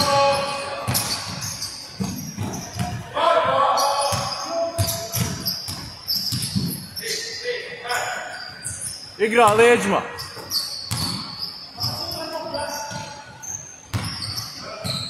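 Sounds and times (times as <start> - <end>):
sneakers squeaking on floor: 0.0 - 15.0
basketball bouncing on wooden floor: 0.9 - 3.1, 4.1 - 6.8, 10.9 - 12.0, 13.9 - 15.0.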